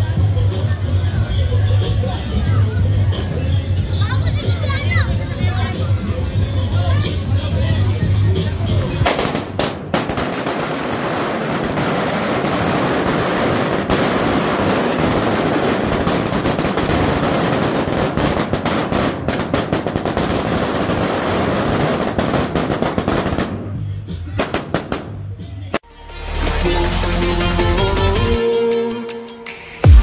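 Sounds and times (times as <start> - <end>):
firecracker string rattling bangs: 9.0 - 23.7.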